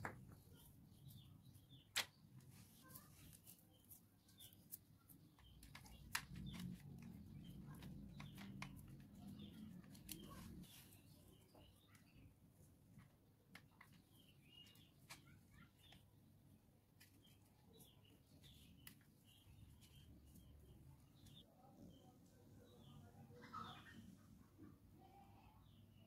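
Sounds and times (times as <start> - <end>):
faint bird chirps: 13.7 - 16.3, 17.0 - 26.0.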